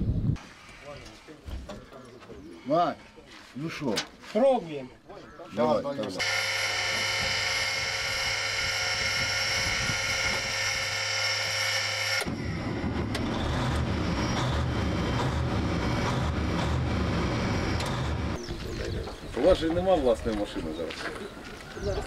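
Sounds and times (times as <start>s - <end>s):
motor whining: 6.2s - 18.4s
rough rumbling machine noise: 6.2s - 18.8s.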